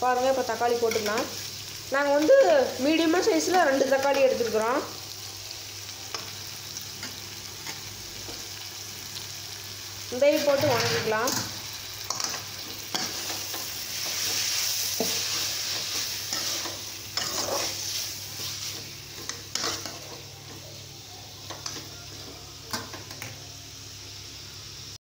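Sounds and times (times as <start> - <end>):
vegetables sizzling in oil: 0.0 - 25.0
metal spatula scraping a pan: 10.4 - 20.2.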